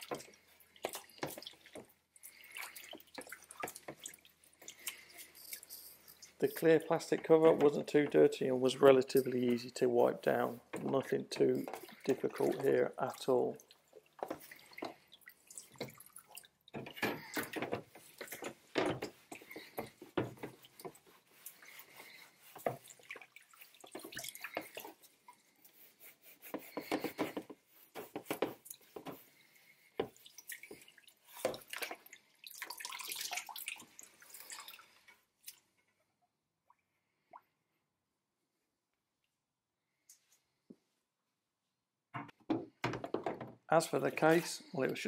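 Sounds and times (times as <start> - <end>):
water sloshing in a tub: 0.0 - 26.0, 26.6 - 36.0
cloth scrubbing plastic panels: 0.0 - 34.5
water running off a panel: 0.0 - 35.0.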